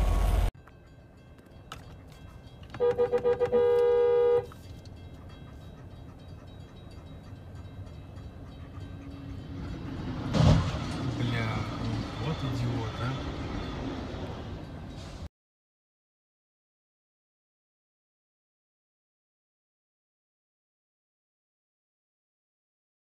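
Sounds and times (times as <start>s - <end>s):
vehicle horn tooting: 2.7s - 4.6s
loud bang: 10.2s - 11.7s.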